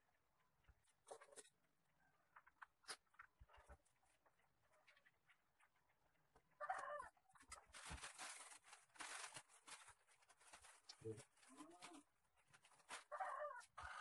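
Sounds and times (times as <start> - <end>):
plastic vines rustling: 7.3 - 13.6.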